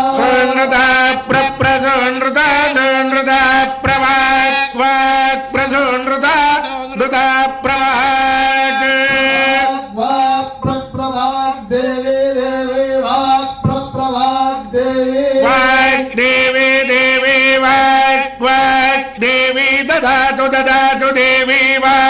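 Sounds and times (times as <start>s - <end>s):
man chanting: 0.0s - 22.0s.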